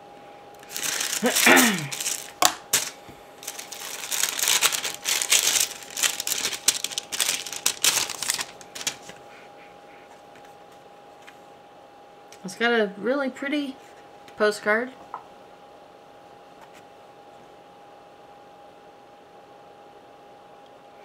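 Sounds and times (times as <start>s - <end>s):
paper crackling and rustling: 0.6s - 9.2s.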